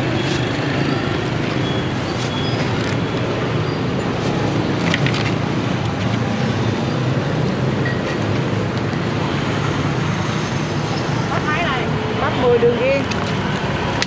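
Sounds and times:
street traffic hum: 0.0s - 14.0s.

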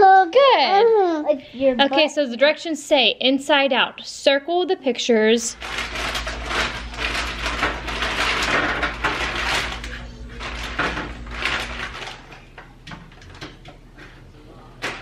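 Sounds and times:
plastic bag crinkling: 5.5s - 13.4s.

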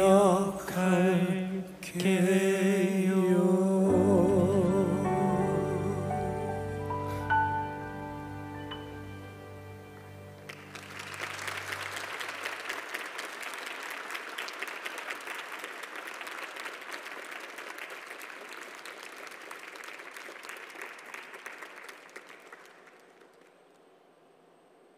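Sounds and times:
last chord of slow song: 3.1s - 12.0s
audience applauding: 10.0s - 23.9s.

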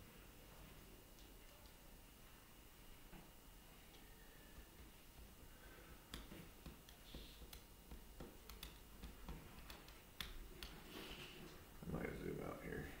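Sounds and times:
faint irregular clicks and taps: 6.1s - 10.9s.

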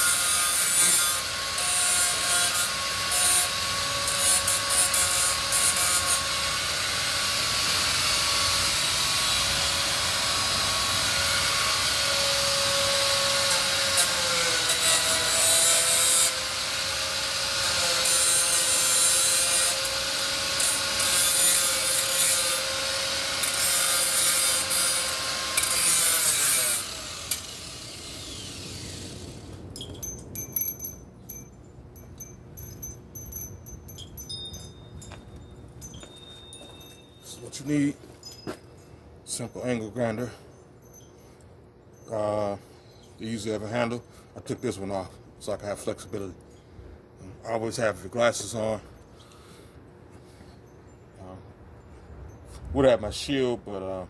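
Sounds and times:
angle grinder grinding metal: 0.0s - 35.2s
wind chimes tinkling: 29.6s - 47.9s.

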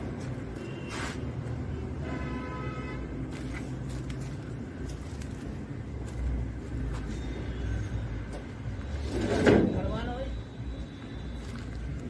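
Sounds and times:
motor vehicle rumbling: 3.0s - 10.0s.

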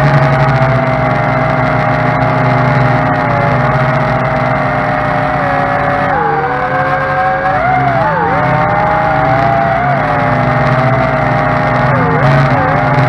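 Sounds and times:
drone propellers whining: 0.0s - 13.0s.

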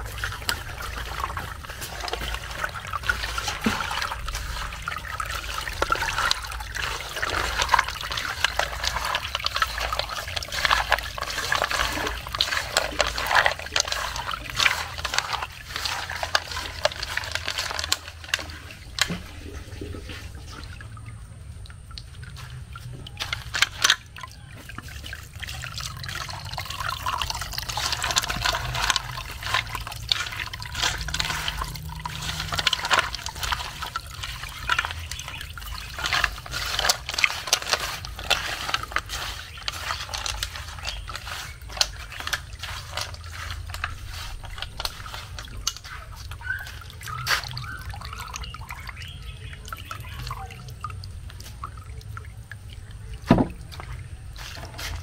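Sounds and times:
juice dripping into bowl: 0.0s - 55.0s
wet squelching by hand: 0.0s - 55.0s.

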